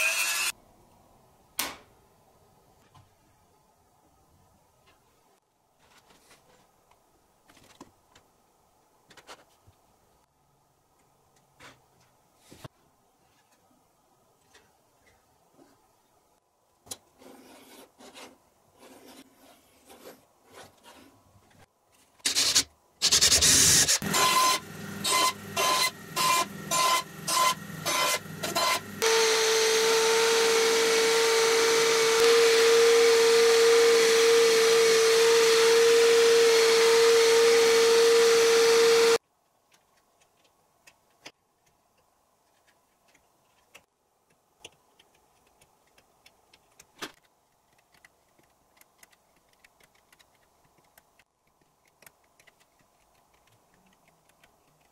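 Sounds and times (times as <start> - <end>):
electric drill boring into wood: 0.0 - 0.5, 23.3 - 39.2
needle file scraping wood: 17.2 - 21.2
belt sander humming: 24.0 - 39.2.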